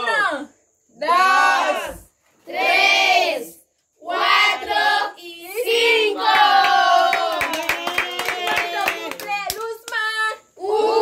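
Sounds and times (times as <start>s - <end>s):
hand clapping: 7.3s - 10.0s.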